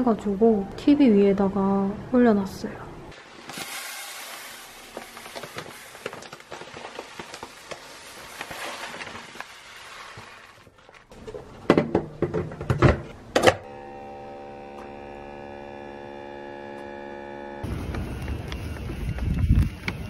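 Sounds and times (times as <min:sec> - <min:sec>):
rice grains pouring into plastic bin: 0:03.2 - 0:11.0.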